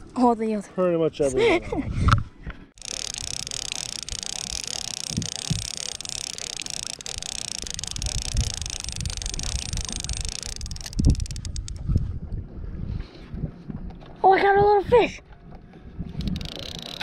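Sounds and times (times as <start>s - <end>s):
wind buffeting microphone: 7.0s - 15.2s.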